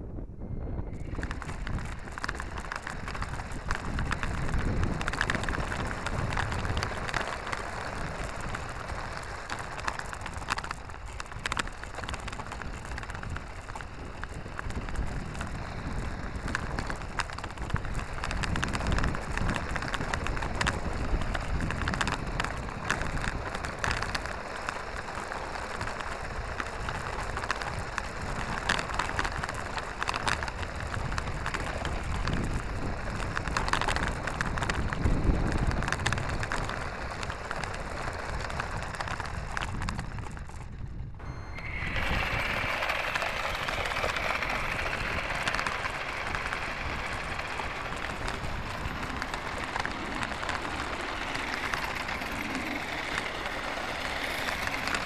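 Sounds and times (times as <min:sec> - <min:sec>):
plastic toy wheels rolling on asphalt: 0:00.0 - 0:55.0.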